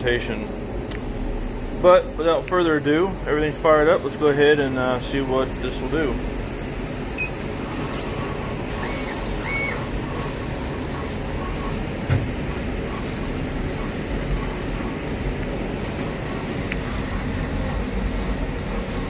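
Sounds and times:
laser cutter gantry moving: 0:00.0 - 0:19.0
stepper motor thump: 0:11.7 - 0:13.4.

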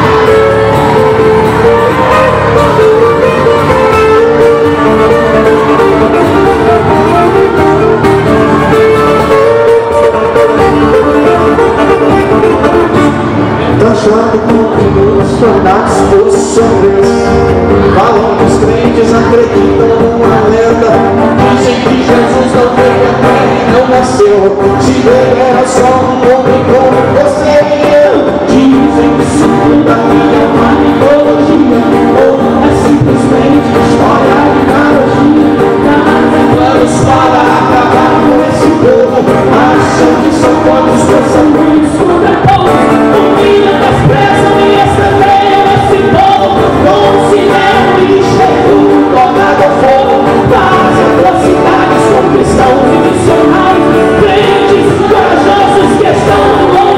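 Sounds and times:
acoustic guitars: 0:00.0 - 0:56.9
gospel band music: 0:00.0 - 0:56.9
man and woman singing: 0:13.6 - 0:56.9.

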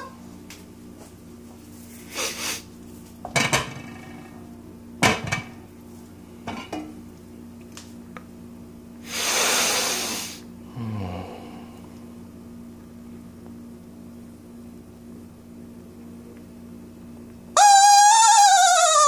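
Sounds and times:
rubber chicken squawk: 0:17.6 - 0:19.0.

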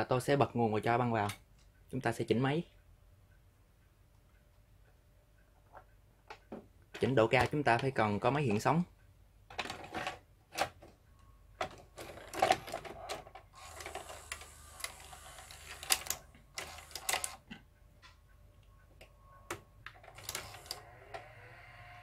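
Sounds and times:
cassette mechanism clicks and clunks: 0:09.5 - 0:11.0
motor whirring: 0:13.6 - 0:17.3, 0:20.2 - 0:22.0.

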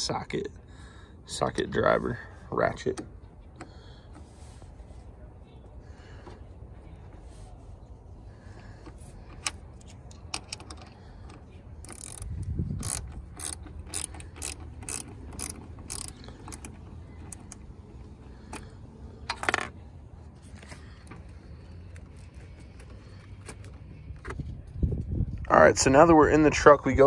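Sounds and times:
socket ratchet clicking: 0:11.8 - 0:17.6.

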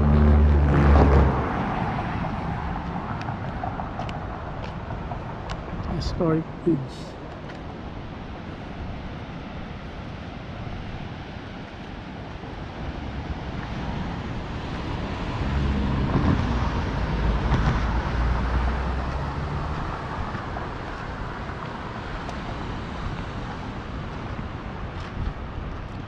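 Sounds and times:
vehicle engine passing: 0:00.0 - 0:03.2, 0:14.7 - 0:21.5
wind and road noise: 0:00.0 - 0:26.0.

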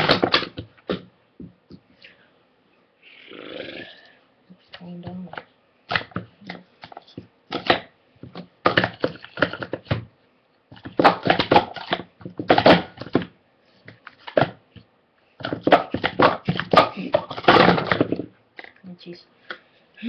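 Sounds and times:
plastic cups clattering: 0:00.0 - 0:01.0, 0:05.3 - 0:10.0, 0:10.7 - 0:13.3, 0:13.9 - 0:14.6, 0:15.4 - 0:18.8.

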